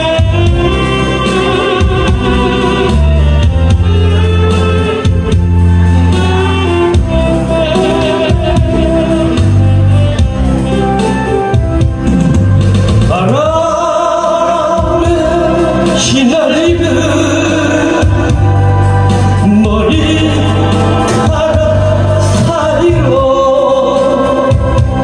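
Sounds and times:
backing track with bass line: 0:00.0 - 0:25.0
man singing into a microphone: 0:13.1 - 0:18.6, 0:19.3 - 0:25.0.

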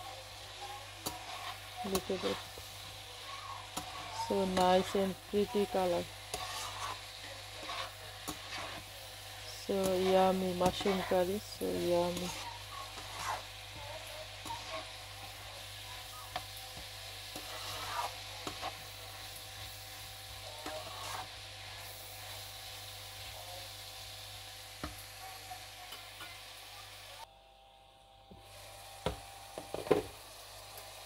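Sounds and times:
mushrooms sizzling in a pan: 0:00.0 - 0:27.3, 0:28.3 - 0:31.0
spatula scraping and knocking pan: 0:00.4 - 0:22.4.

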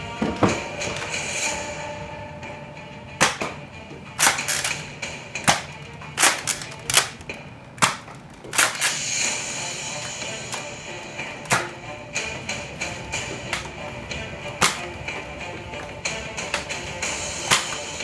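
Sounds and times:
toy blasters firing and cocking: 0:04.2 - 0:09.4, 0:17.4 - 0:17.9.

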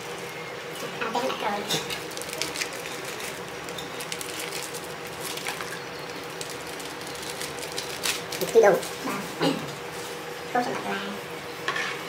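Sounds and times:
plastic bag crinkling: 0:01.7 - 0:09.0.

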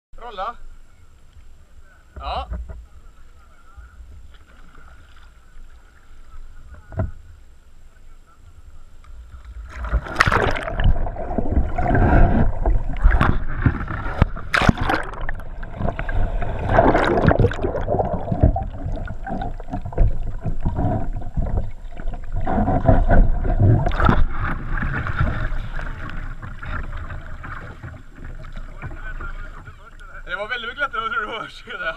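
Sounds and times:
muffled underwater rushing bubbling: 0:09.5 - 0:30.4
heavy water splashing: 0:09.6 - 0:30.5.

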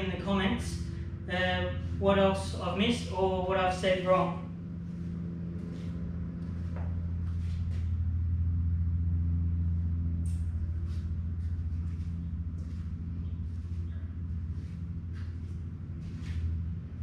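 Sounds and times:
low mechanical hum: 0:00.0 - 0:17.0
faint scuffs and clicks: 0:10.3 - 0:16.7.

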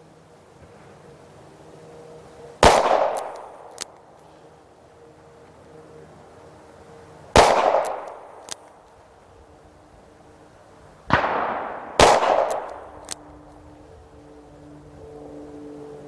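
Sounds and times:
revolver gunshots echoing: 0:02.6 - 0:03.7, 0:07.3 - 0:08.4, 0:11.1 - 0:13.0.

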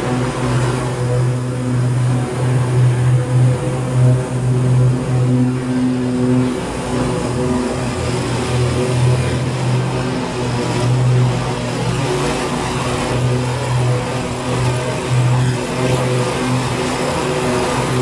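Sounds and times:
mower running: 0:04.4 - 0:18.0.

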